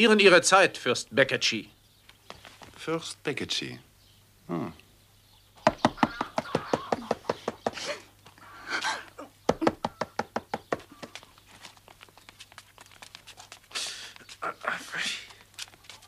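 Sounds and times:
rapid sharp knocks: 5.6s - 7.8s, 9.5s - 11.2s.

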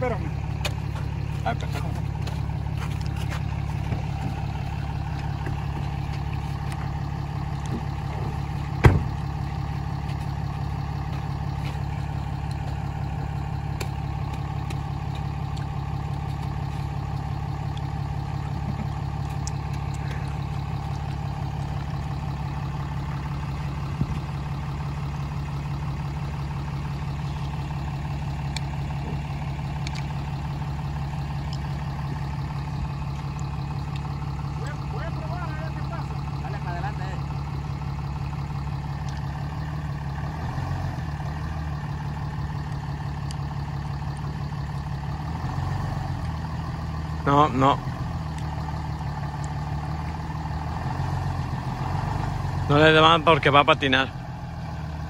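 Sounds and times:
pickup truck engine idling: 0.0s - 55.0s.

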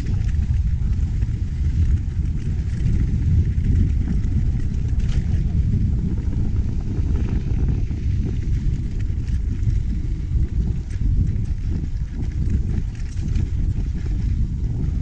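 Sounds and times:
bike rattling: 0.0s - 15.0s
wind rumble on microphone: 0.0s - 15.0s.

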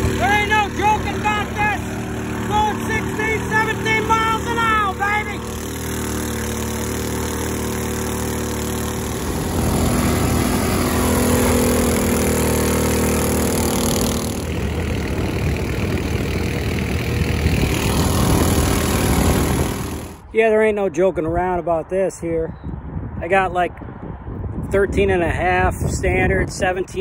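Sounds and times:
boat engine running hard: 0.0s - 20.3s.

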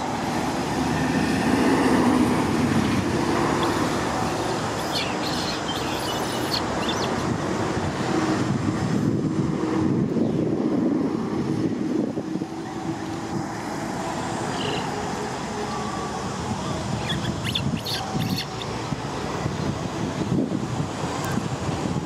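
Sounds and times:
wind rumbling on microphone: 0.0s - 14.9s, 16.4s - 22.0s
baby monkey squeaks: 4.8s - 7.1s, 17.0s - 18.6s.

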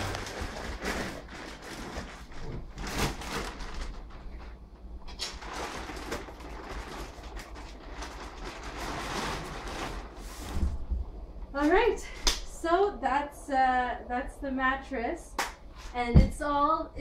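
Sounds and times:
plastic wrapping crinkling: 0.0s - 10.6s.

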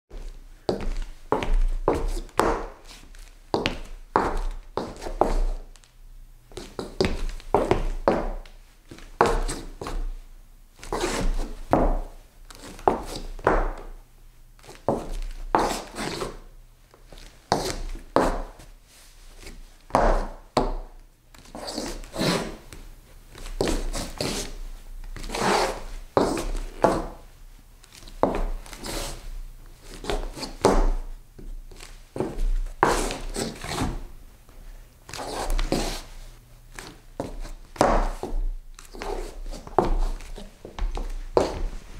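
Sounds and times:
footsteps scuffing on wooden floor: 0.1s - 5.6s, 6.5s - 10.1s, 25.2s - 41.9s.

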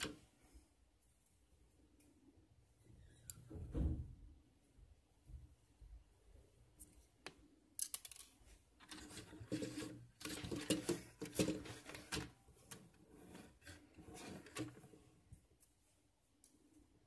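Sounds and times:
plastic parts clicking and rubbing: 6.8s - 15.0s.

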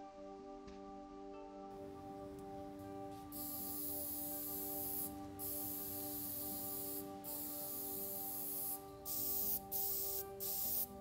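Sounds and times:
aerosol spray can hissing: 2.4s - 11.0s.

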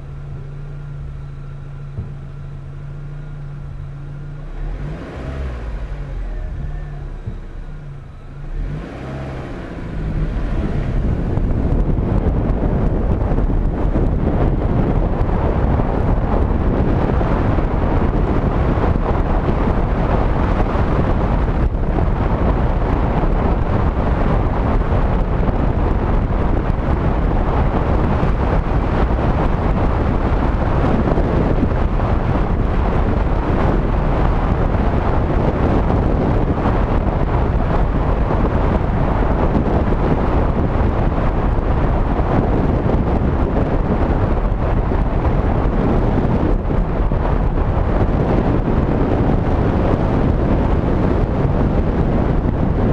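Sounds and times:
wind buffeting microphone: 0.0s - 52.9s.

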